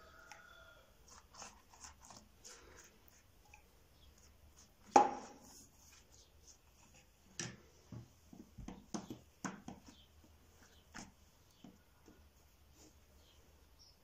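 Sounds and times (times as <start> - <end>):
hands folding dough on wood: 4.1 - 13.6
soft taps and thumps: 7.3 - 13.0.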